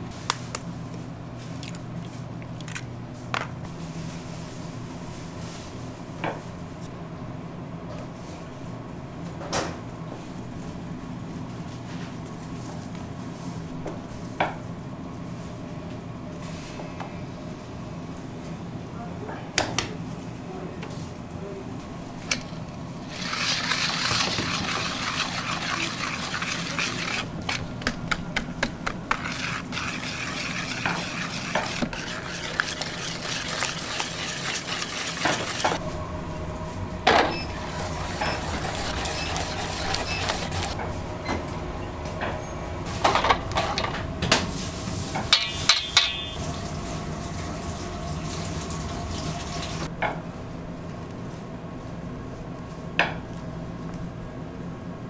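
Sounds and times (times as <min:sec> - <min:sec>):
machine hum: 0:21.6 - 0:50.9
mixture scraped and poured: 0:23.1 - 0:28.0, 0:28.8 - 0:35.8, 0:37.5 - 0:40.8.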